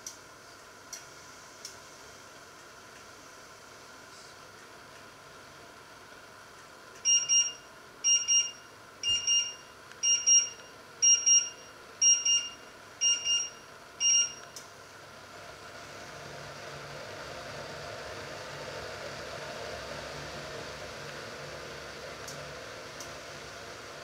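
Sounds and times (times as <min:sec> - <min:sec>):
kitchen timer double beeps: 0:07.0 - 0:14.6.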